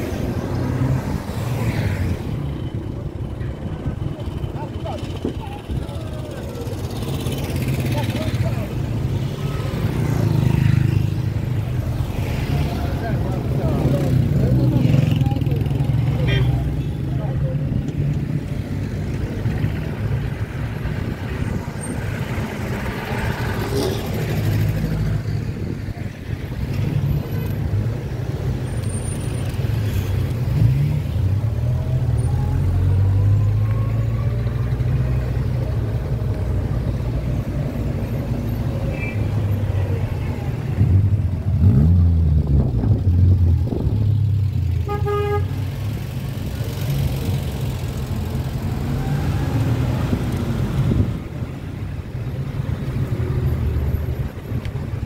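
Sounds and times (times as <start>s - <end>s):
city street traffic rumble: 0.0s - 55.0s
car horn toot: 44.8s - 45.6s.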